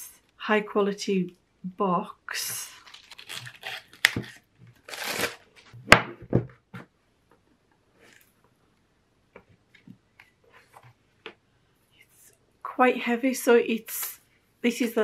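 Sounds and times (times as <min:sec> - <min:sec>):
plastic shrink-wrap tearing and crinkling: 0:02.7 - 0:05.8.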